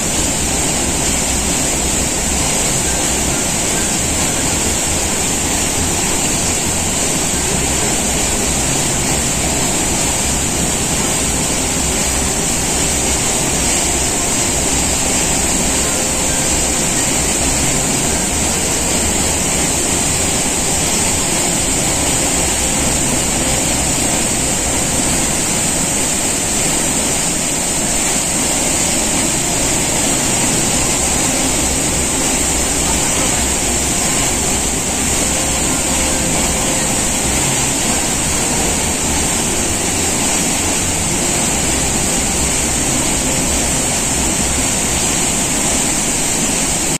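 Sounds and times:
waterfall torrent rushing: 0.0 - 46.9.

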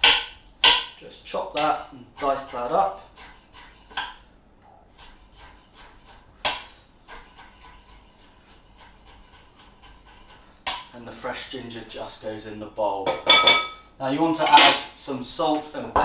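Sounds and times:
knife chopping on board: 1.6 - 4.2, 5.0 - 10.9.

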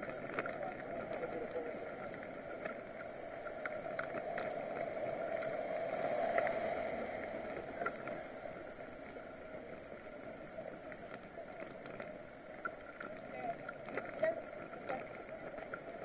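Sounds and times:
road and wind noise: 0.0 - 16.0
light clicks: 2.0 - 5.6.

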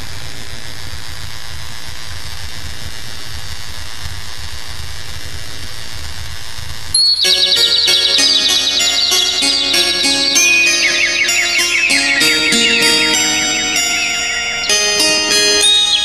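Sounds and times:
backing track with plucked strings: 7.3 - 16.0.

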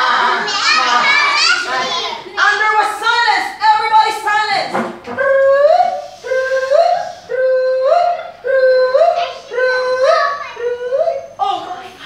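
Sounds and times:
voices making rising vocal call: 5.1 - 11.4.

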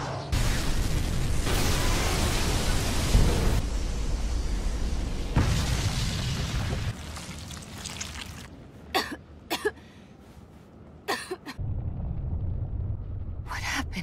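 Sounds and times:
woman coughing: 8.9 - 9.8, 11.1 - 11.6
low rumble: 11.6 - 14.0.

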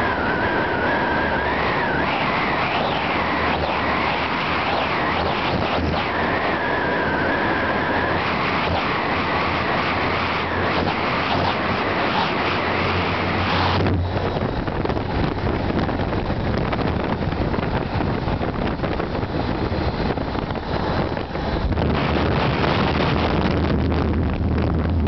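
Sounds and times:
wind rush on microphone: 0.0 - 25.0.

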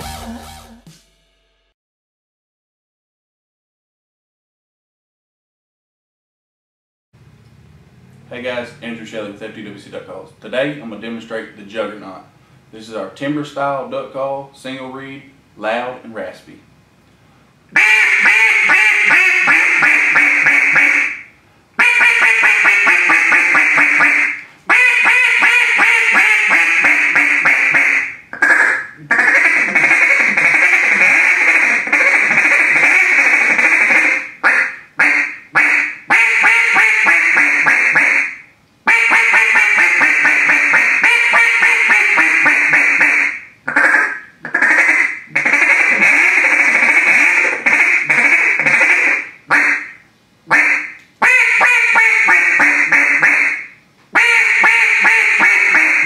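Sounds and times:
duck call quacks: 17.8 - 56.0.

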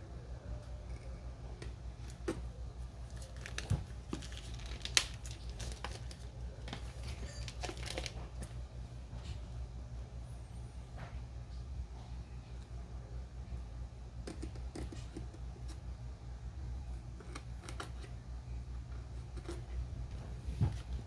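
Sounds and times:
low steady hum: 0.0 - 21.0
packaging crinkling and tearing: 3.0 - 8.5.

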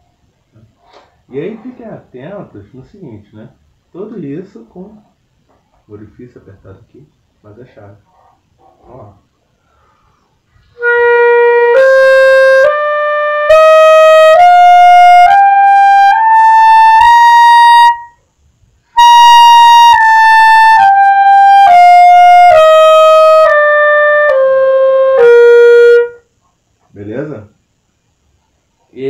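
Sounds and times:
clarinet playing a scale: 10.6 - 18.2, 19.0 - 26.3.

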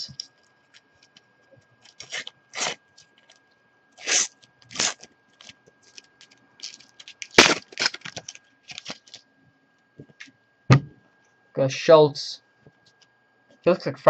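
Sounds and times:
paper packet tearing and crinkling: 1.8 - 3.4, 4.0 - 9.2
sharp paper rustle: 1.9 - 3.4, 4.0 - 9.2.

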